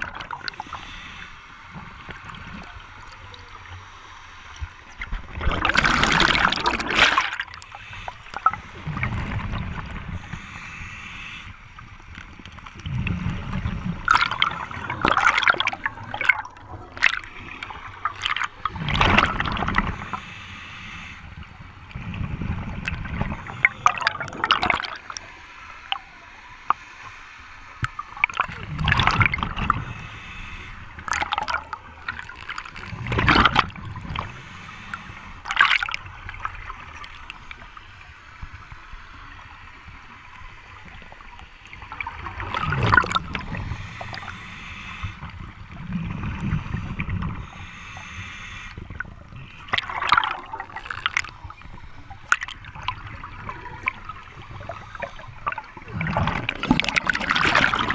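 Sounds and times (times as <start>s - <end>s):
exhaled bubbles gurgling: 0.0s - 3.7s, 4.6s - 11.0s, 12.3s - 20.3s, 21.2s - 25.3s, 27.8s - 37.7s, 39.4s - 57.9s
regulator inhalation hiss: 0.5s - 1.7s, 7.6s - 9.1s, 10.0s - 11.8s, 19.8s - 21.5s, 29.8s - 31.0s, 34.2s - 35.5s, 43.4s - 45.4s, 46.5s - 48.9s.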